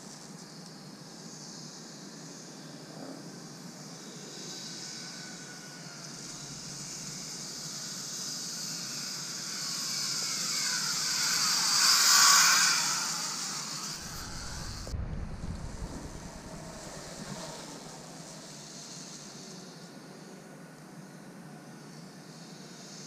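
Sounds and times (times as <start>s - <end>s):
zip-line trolley whirring on cable: 0.0s - 23.0s
wind rumble on microphone: 13.9s - 18.4s.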